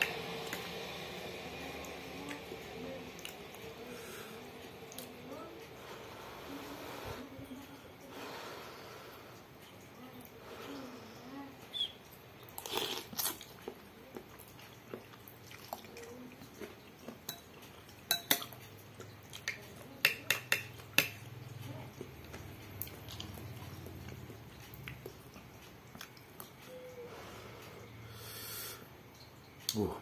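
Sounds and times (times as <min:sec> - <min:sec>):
slurping and chewing noodles: 0:12.4 - 0:19.7, 0:21.9 - 0:28.1
cutlery clinking on glass bowl: 0:17.2 - 0:18.6, 0:19.4 - 0:21.3.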